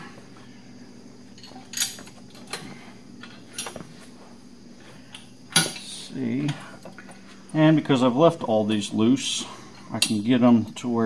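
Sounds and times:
metal parts clinking: 0:01.4 - 0:02.2.

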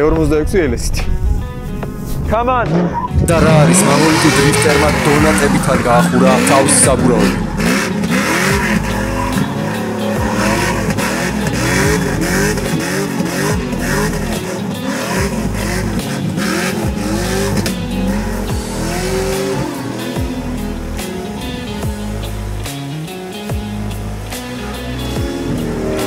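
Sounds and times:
car engine revving: 0:02.0 - 0:26.0.

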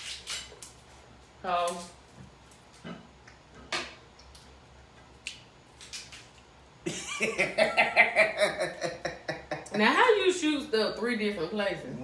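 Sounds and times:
shellfish shells cracking: 0:05.2 - 0:06.5.

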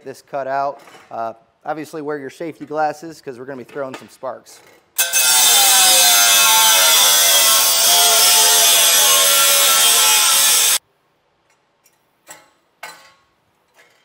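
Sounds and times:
angle grinder cutting steel: 0:05.0 - 0:10.8.

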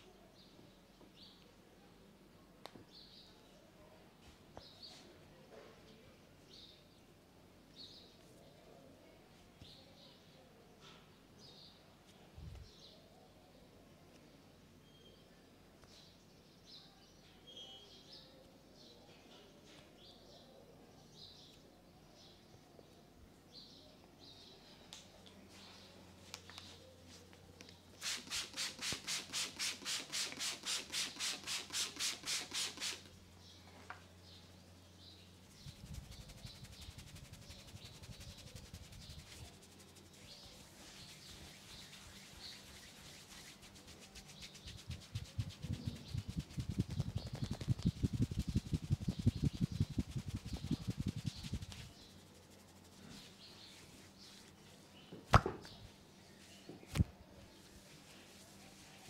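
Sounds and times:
hands rubbing over hair: 0:28.0 - 0:33.1, 0:35.5 - 0:54.6
hands slapping on a head: 0:43.7 - 0:51.9, 0:55.3 - 0:55.8.

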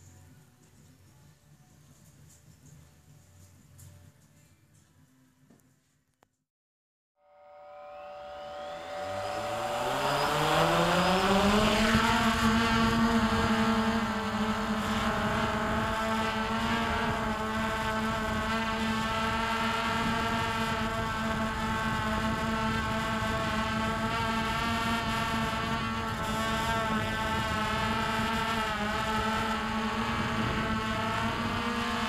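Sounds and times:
drone propellers whining: 0:07.3 - 0:32.0.

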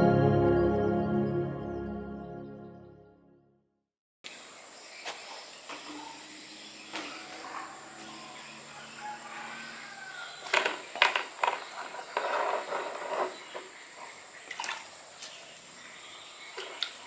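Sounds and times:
water splashing and sloshing: 0:10.4 - 0:15.8, 0:16.4 - 0:17.0.

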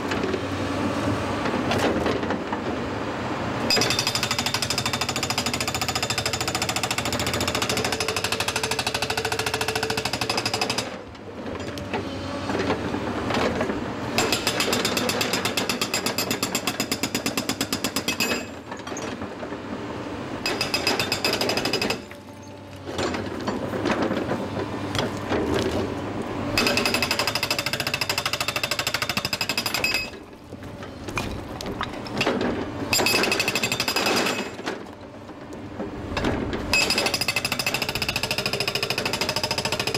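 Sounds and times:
hydraulic breaker hammering rock: 0:03.7 - 0:11.0, 0:14.2 - 0:19.2, 0:20.4 - 0:22.2, 0:26.6 - 0:30.2, 0:31.1 - 0:34.7, 0:36.2 - 0:39.9
machine noise: 0:20.4 - 0:34.8.

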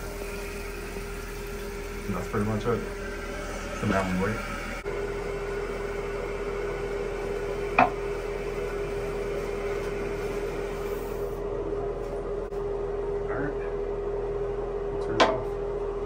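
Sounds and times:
hiss of running water: 0:00.0 - 0:11.4
steady hum: 0:00.0 - 0:16.0.

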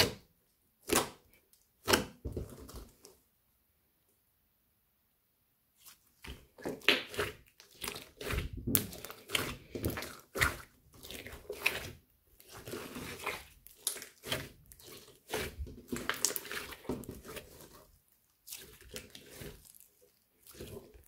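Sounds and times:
slime squishing and popping: 0:06.2 - 0:17.8.

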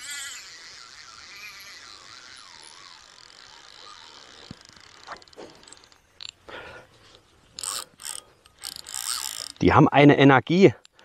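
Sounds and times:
fishing reel drag buzzing: 0:00.0 - 0:06.4, 0:07.5 - 0:09.8.

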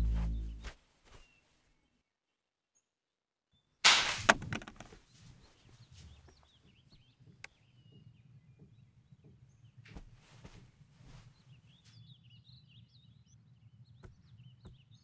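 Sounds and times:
bird chirps: 0:00.0 - 0:01.5.

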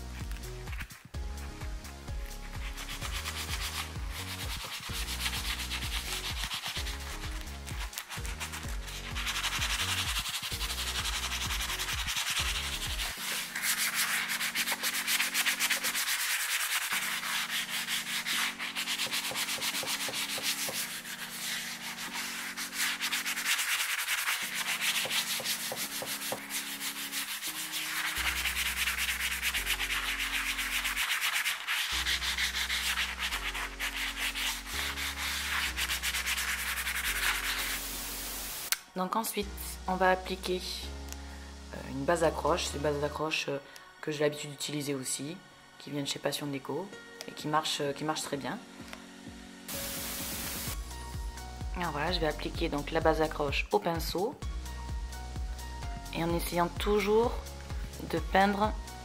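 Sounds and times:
sanding sponge scrubbing wood: 0:02.2 - 0:38.7, 0:49.7 - 0:50.8.

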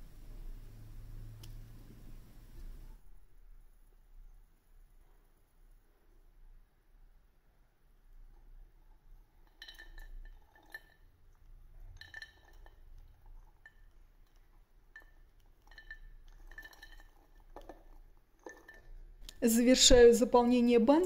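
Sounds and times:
berries clinking against glass: 0:09.5 - 0:11.0, 0:11.9 - 0:19.4.

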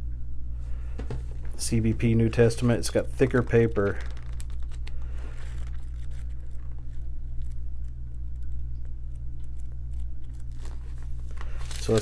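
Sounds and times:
steady low hum: 0:00.0 - 0:12.0
pages being leafed through: 0:03.2 - 0:12.0.

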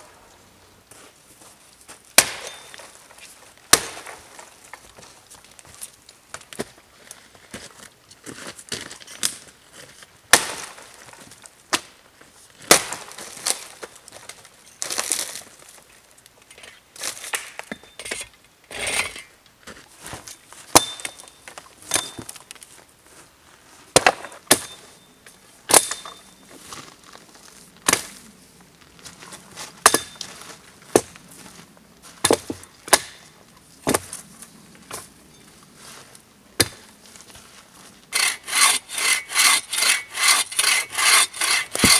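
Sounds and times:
hatchet chopping into log: 0:02.2 - 0:02.6, 0:03.7 - 0:04.2, 0:32.2 - 0:33.2.

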